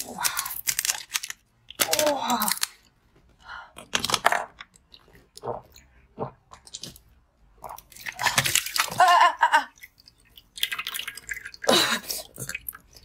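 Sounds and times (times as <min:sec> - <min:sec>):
plastic bottle crackling: 0:00.0 - 0:02.8.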